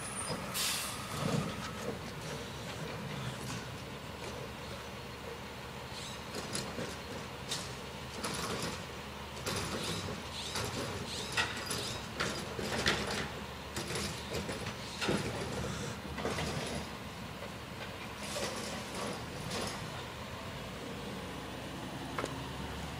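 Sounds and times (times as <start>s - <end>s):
garbage truck engine humming: 0.0s - 22.9s
clanks and creaks of bins: 0.2s - 4.5s, 6.3s - 20.0s.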